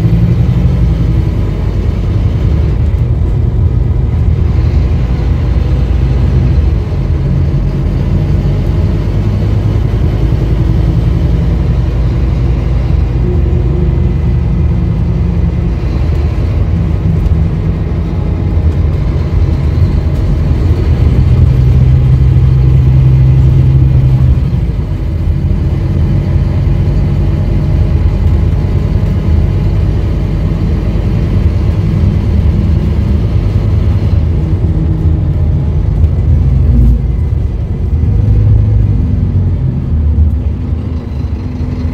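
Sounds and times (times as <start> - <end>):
bus diesel engine running: 0.0 - 41.9
road noise: 0.0 - 41.9.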